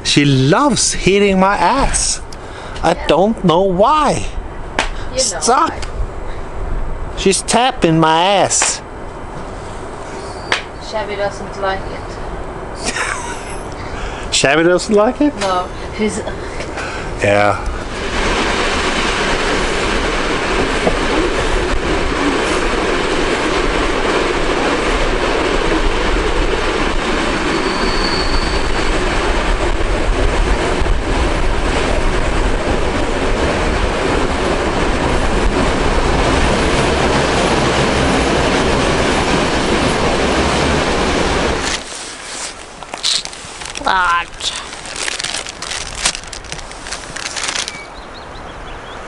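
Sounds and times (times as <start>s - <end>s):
train wheels rumbling on rails: 0.0s - 48.2s
short high squeal: 10.1s - 10.6s, 27.5s - 29.0s.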